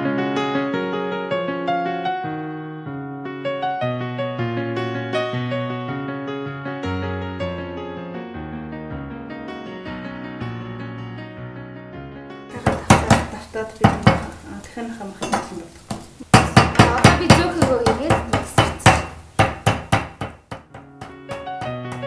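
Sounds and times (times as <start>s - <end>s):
piano music: 0.0s - 22.0s
meat mallet pounding on board: 12.6s - 14.3s, 15.9s - 22.0s.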